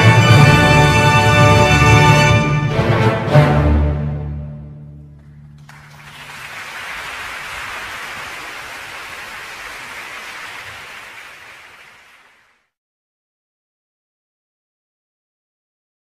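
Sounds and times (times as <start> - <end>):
audience applauding: 5.2 - 12.7.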